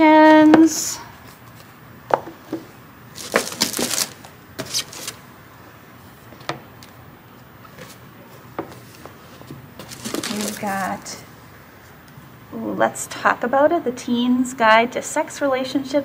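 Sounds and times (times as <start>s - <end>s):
books sliding: 3.2s - 5.2s, 9.8s - 10.8s.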